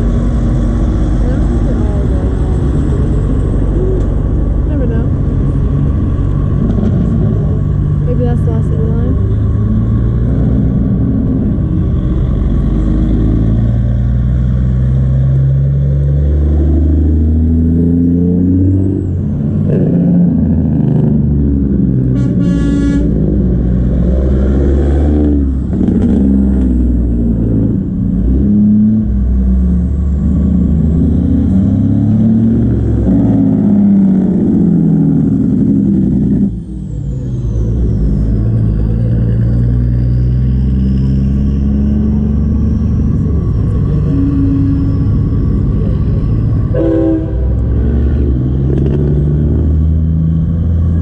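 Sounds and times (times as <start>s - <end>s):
semi-truck diesel engines: 0.0s - 51.0s
truck air horn: 22.1s - 23.3s, 46.7s - 47.8s.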